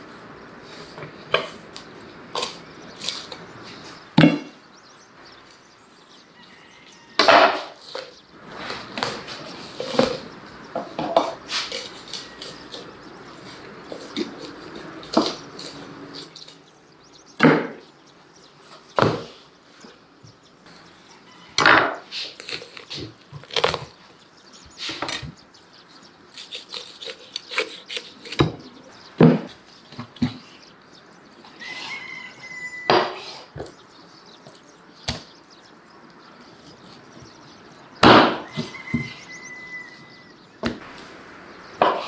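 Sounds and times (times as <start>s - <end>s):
slicing and handling raw meat: 11.3s - 16.7s, 22.0s - 25.4s, 26.0s - 28.8s.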